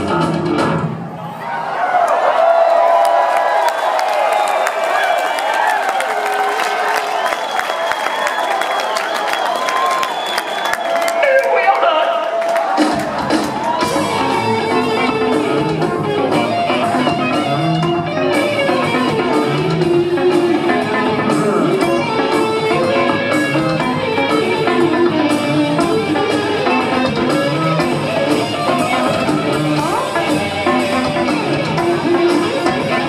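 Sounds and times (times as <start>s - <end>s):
electric bass guitar: 0.0s - 1.0s, 13.1s - 33.0s
drum kit: 0.0s - 1.1s, 12.6s - 33.0s
electric guitar: 12.8s - 33.0s.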